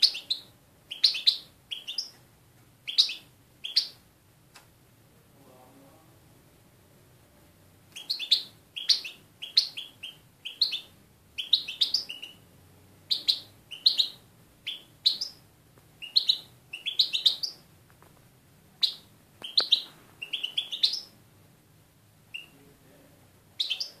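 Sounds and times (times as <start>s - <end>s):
finch chirping song: 0.0s - 2.2s, 2.8s - 4.0s, 7.9s - 15.4s, 16.0s - 17.7s, 18.8s - 21.2s, 22.3s - 22.6s, 23.6s - 24.0s.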